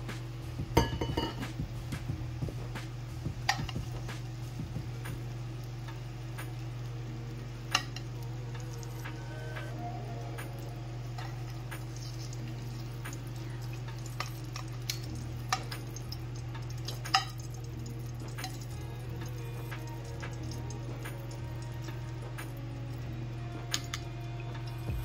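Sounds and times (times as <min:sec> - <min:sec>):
low hum: 0:00.0 - 0:25.0
metal tongs clinking on ceramic: 0:00.8 - 0:01.4, 0:13.6 - 0:18.8.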